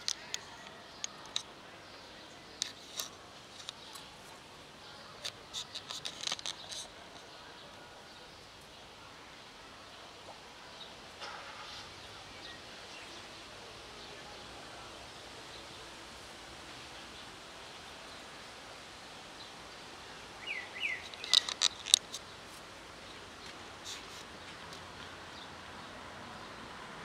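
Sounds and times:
faint outdoor hiss: 0.0 - 27.0
cat crunching dry food: 21.1 - 22.2.

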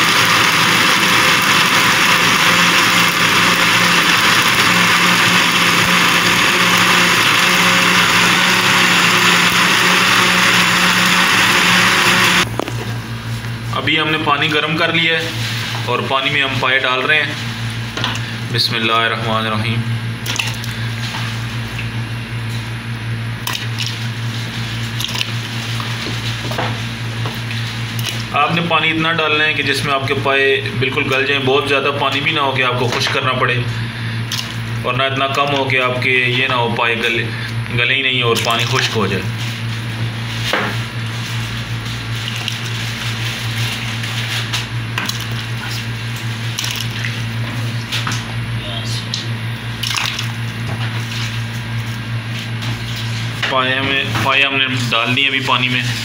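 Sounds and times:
meat splashing into pot of water: 49.8 - 50.4.

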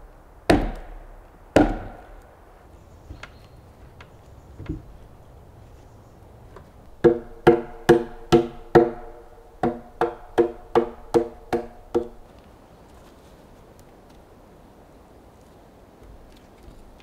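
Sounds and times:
mallet knocking timber beam: 0.5 - 2.2, 7.0 - 12.2.

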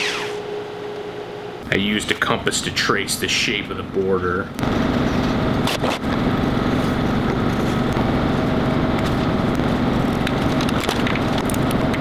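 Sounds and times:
electric motor droning: 0.0 - 0.5.

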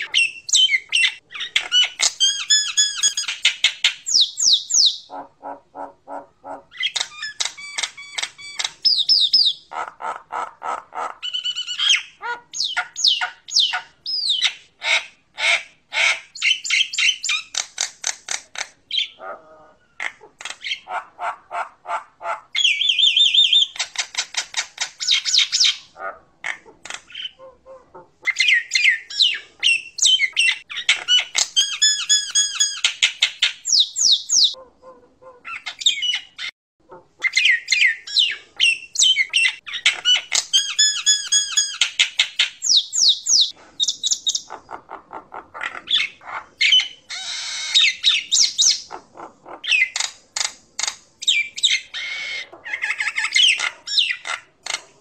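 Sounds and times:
bird singing with clicks and trills: 0.0 - 5.1, 6.7 - 9.7, 11.2 - 14.7, 16.3 - 19.2, 22.6 - 25.9, 28.3 - 34.6, 37.2 - 44.6, 45.9 - 49.0, 49.7 - 54.9.

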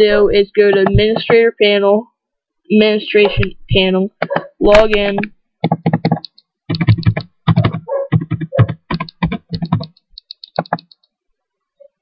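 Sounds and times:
typing on a keyboard: 5.2 - 11.1.

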